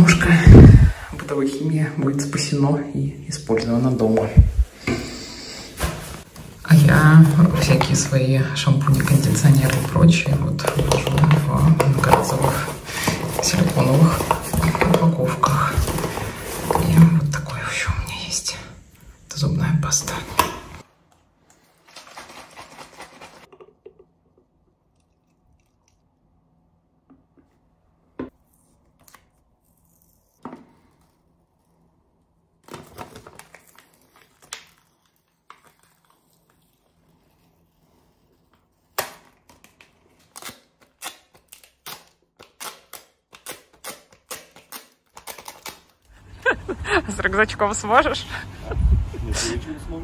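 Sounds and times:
plastic rustling: 21.6s - 23.7s, 32.6s - 37.2s.

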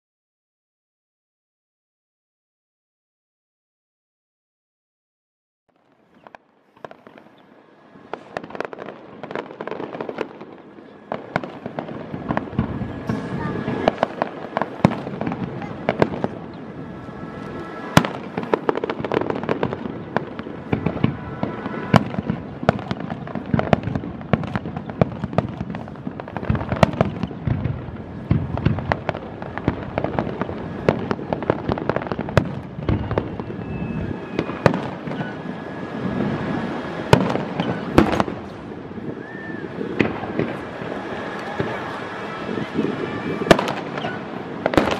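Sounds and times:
firework shells bursting: 8.1s - 38.7s.

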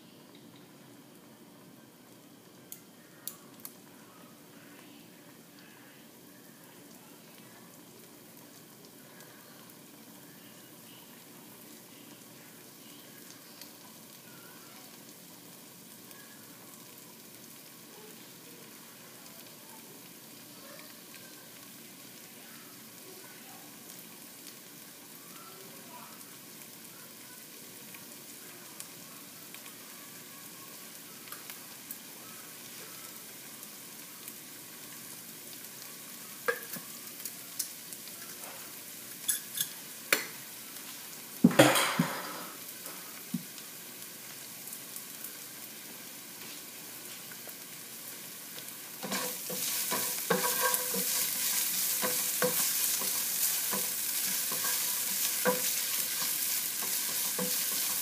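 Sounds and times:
ginger sizzling in oil: 0.0s - 58.0s.

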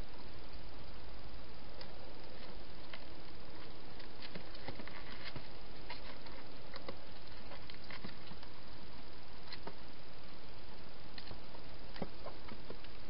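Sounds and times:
steady hiss: 0.0s - 13.0s
small clicks and crackles: 1.8s - 8.6s, 9.4s - 9.9s, 11.1s - 13.0s.

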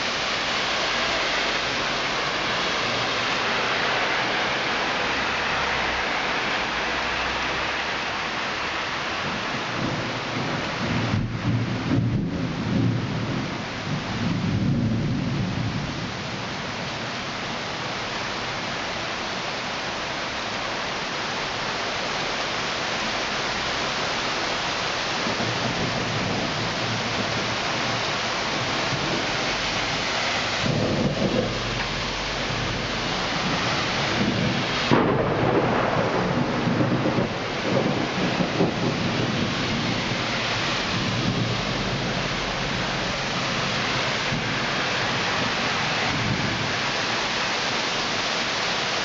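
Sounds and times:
heavy rain pouring: 0.0s - 49.0s
low rolling thunder: 9.2s - 17.2s, 25.1s - 47.1s.

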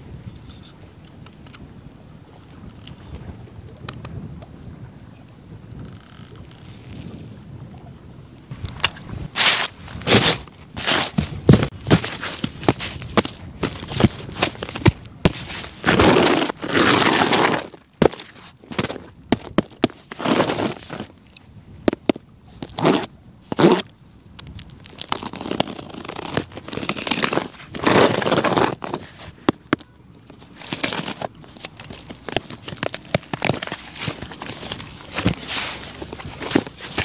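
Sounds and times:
cardboard flaps rubbing: 9.4s - 21.1s, 32.0s - 37.0s
packing tape peeling: 9.4s - 21.1s, 22.6s - 23.9s, 24.6s - 29.8s.

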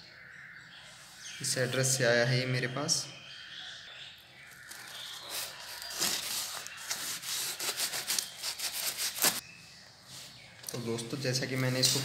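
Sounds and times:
blade cutting tape and cardboard: 4.7s - 9.4s.

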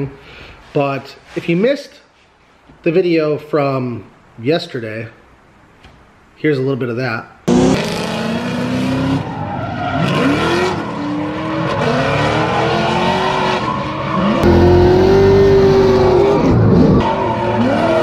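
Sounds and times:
car engines revving: 7.5s - 18.0s.

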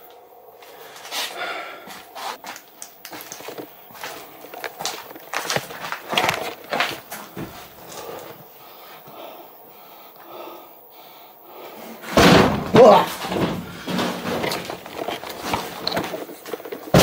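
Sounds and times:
knocks in wooden cabin: 12.1s - 16.0s.

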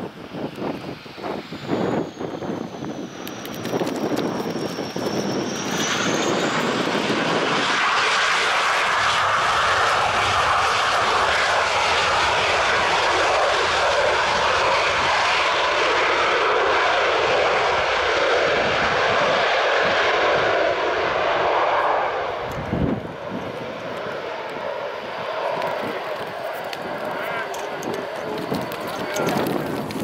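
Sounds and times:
jet engine whine and roar: 0.0s - 30.0s.

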